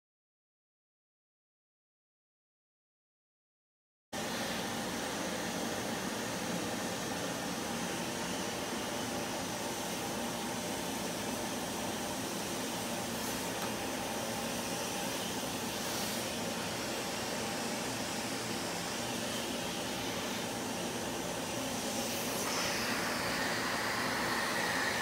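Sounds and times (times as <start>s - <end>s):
fan whirring: 4.2s - 25.0s.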